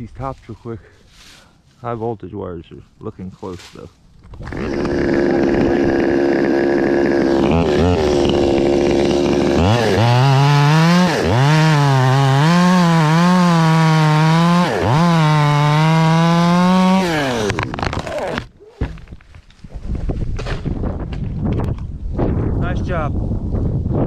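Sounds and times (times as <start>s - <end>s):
chainsaw cutting wood: 4.3s - 19.1s
chainsaw idling: 4.4s - 17.7s.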